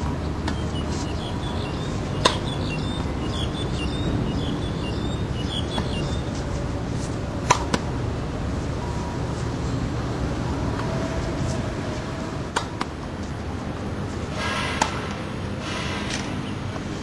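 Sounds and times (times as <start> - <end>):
steady background noise: 0.0 - 17.0
tennis ball racquet pops: 7.4 - 7.8, 12.5 - 12.9.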